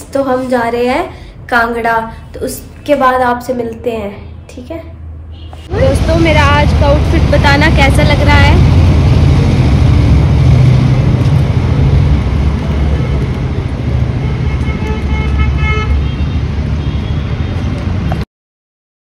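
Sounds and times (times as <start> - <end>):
street traffic rumble: 0.0 - 18.3
vehicle horn: 5.3 - 5.8, 14.1 - 17.6.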